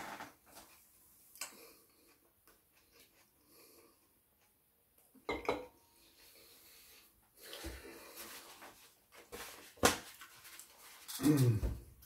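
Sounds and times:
paper rustling: 7.7 - 11.6.

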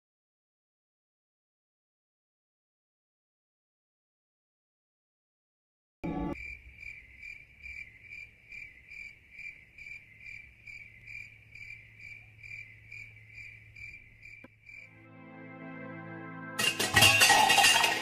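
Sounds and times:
crickets chirping: 6.3 - 14.9
soft music: 14.9 - 18.0.

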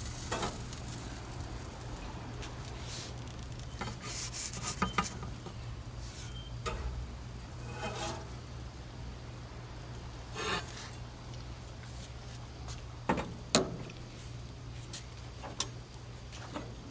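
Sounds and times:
metal spatula scraping: 3.7 - 5.3, 6.0 - 8.4, 10.3 - 11.0.

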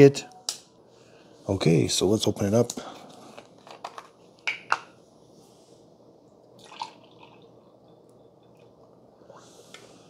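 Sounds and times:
liquid trickling into a mug: 6.6 - 7.7.

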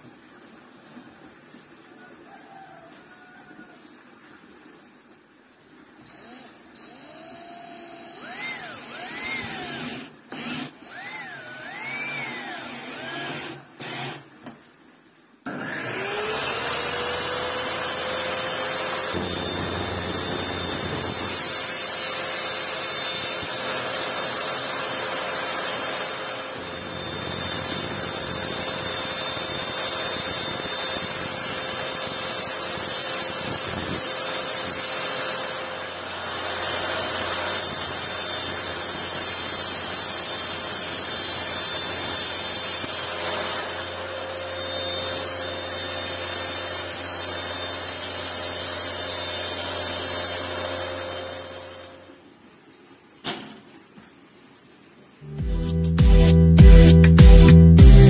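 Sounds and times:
table saw cutting laminate: 6.1 - 14.2, 15.5 - 52.0
cordless drill driving screws: 6.1 - 14.4, 15.5 - 51.9.

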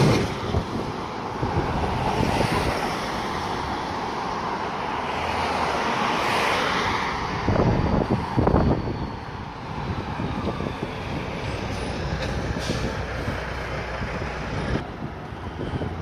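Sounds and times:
wind buffeting microphone: 0.0 - 3.6, 7.1 - 16.0
city traffic rumble: 0.0 - 16.0.

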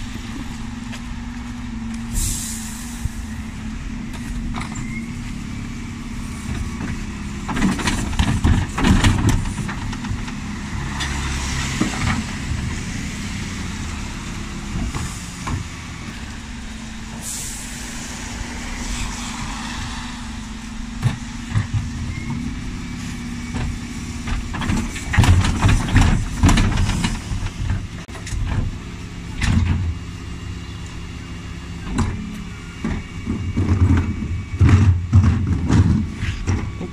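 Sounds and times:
diesel engine hum: 0.0 - 36.9
air brake hiss: 2.1 - 3.3, 17.2 - 20.5
wheelie bins banging: 23.4 - 28.8, 32.9 - 36.9.

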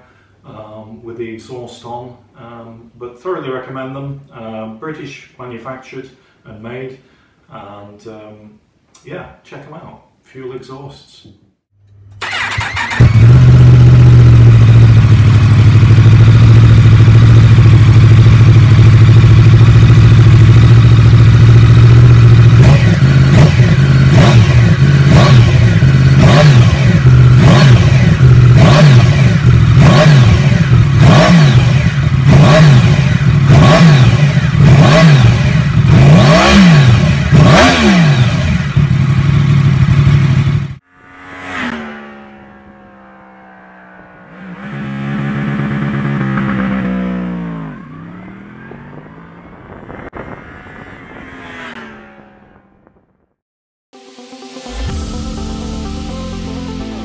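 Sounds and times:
motorcycle engine idling and revving: 12.2 - 53.4.

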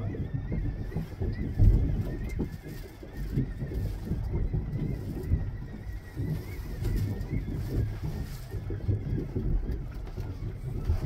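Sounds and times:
boat engine rumble: 0.0 - 11.0
faint wavering whine: 0.0 - 11.0
wind buffeting microphone: 0.0 - 11.0.

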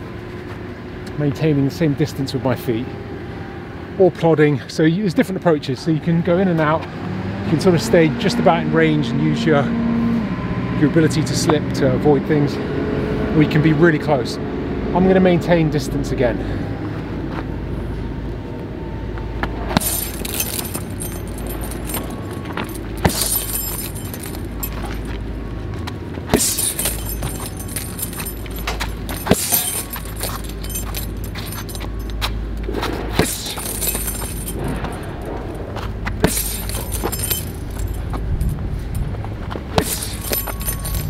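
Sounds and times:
gloves smacking punch bag: 19.8 - 25.0, 26.3 - 31.5, 33.2 - 34.9, 36.2 - 37.6, 39.8 - 41.0
chain jangling: 19.8 - 25.3, 26.3 - 32.4, 33.1 - 39.2, 39.8 - 41.0.

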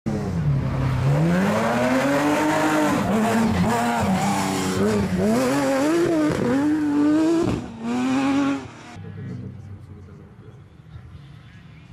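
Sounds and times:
buggy engine revving: 0.1 - 9.8.

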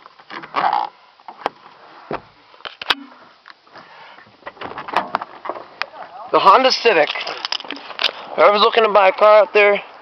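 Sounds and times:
breath-like rush of noise: 1.8 - 4.4.

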